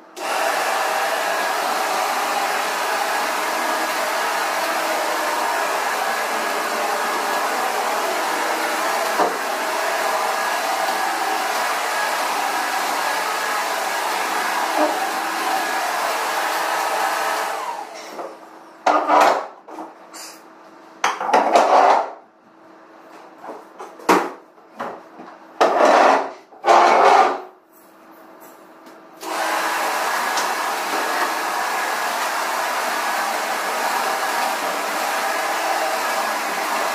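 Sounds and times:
vacuum cleaner running: 0.0s - 19.4s, 29.2s - 36.9s
loud knocks and scrapes: 18.9s - 20.0s, 21.2s - 22.2s, 25.6s - 27.5s.

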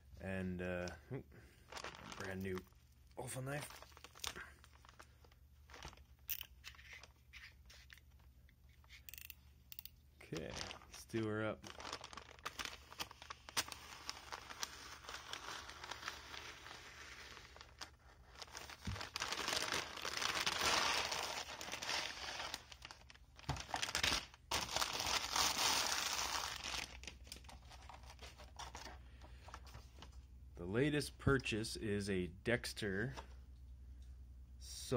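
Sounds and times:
paper mailer crinkling: 1.6s - 6.1s, 10.2s - 30.0s.

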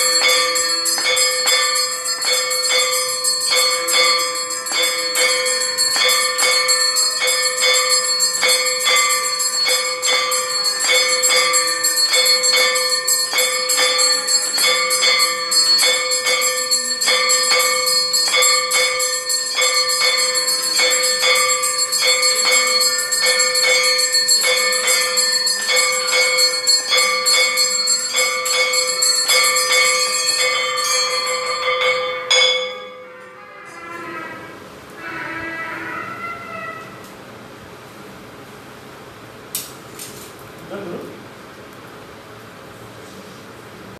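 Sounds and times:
bells ringing in steady rhythm: 0.0s - 34.5s.

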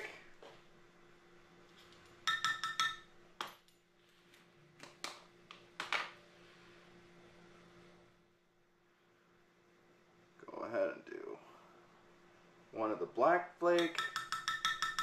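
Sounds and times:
metal spoon clinking: 2.2s - 3.7s, 13.8s - 15.0s.

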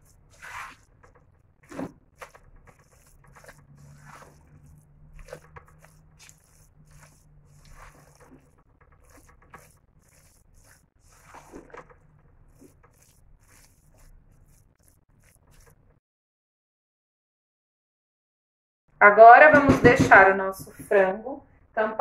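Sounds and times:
spatula scraping in pot: 0.0s - 16.0s.

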